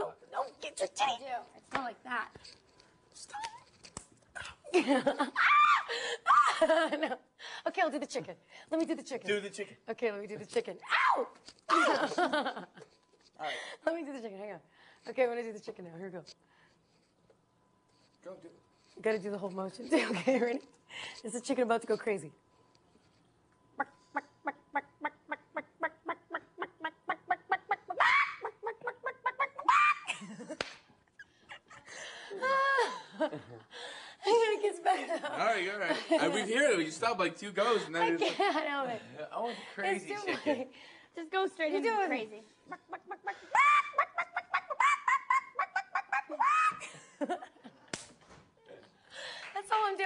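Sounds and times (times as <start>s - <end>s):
person clucking like a chicken: 23.8s - 30.0s, 42.8s - 46.8s
person squawking like a chicken: 23.8s - 30.1s, 42.8s - 46.8s.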